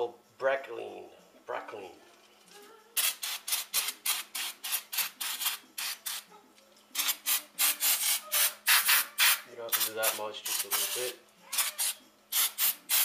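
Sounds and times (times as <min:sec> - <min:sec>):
aerosol spray hisses: 0:07.0 - 0:13.0.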